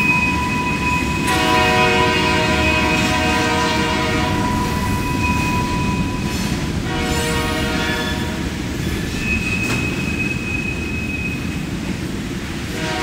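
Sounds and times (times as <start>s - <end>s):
passing train rumble: 0.0s - 13.0s
locomotive air horn: 1.2s - 5.8s, 6.5s - 8.4s, 12.7s - 13.0s.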